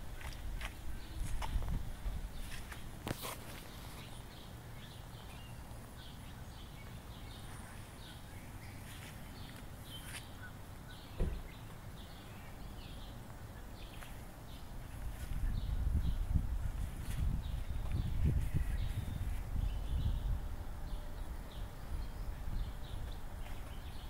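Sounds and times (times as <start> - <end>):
birds chirping: 0.0 - 24.0
single knock: 11.2 - 11.4.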